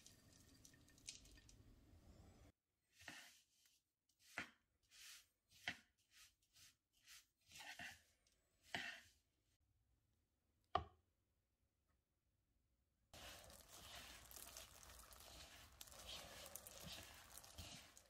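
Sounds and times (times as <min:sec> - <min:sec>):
spoon scraping dry crumbs: 0:02.9 - 0:09.2, 0:13.2 - 0:18.0.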